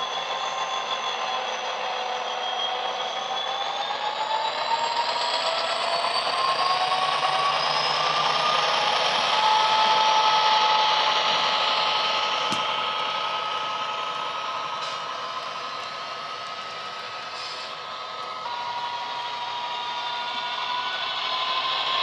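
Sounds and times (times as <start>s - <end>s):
diesel locomotive engine from small speaker: 0.0s - 22.0s
high turbo whine: 0.0s - 22.0s.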